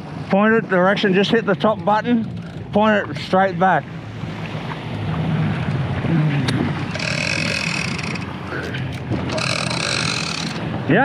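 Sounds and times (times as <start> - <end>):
water noise: 0.0 - 11.0
wind: 0.0 - 11.0
outboard motor running: 1.1 - 11.0
high buzzing whine: 6.9 - 8.4, 9.3 - 10.6.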